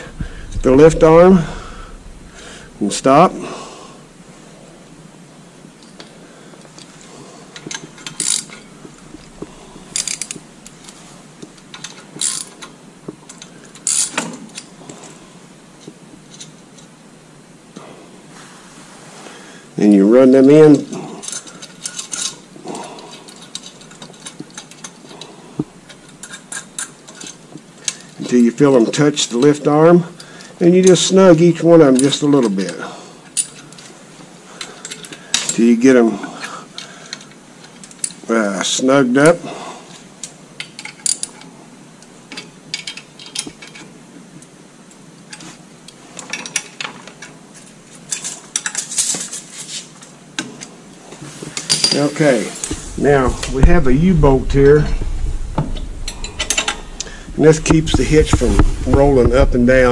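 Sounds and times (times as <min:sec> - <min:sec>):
loud knock: 0:52.8 - 0:59.6.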